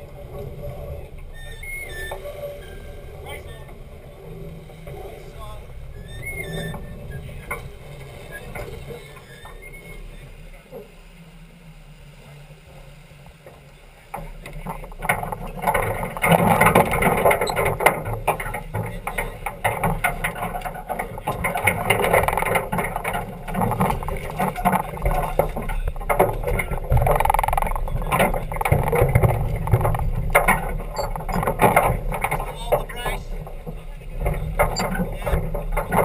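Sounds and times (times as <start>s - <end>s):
water rushing past boat: 0.0s - 36.0s
gusty wind on microphone: 21.1s - 32.5s.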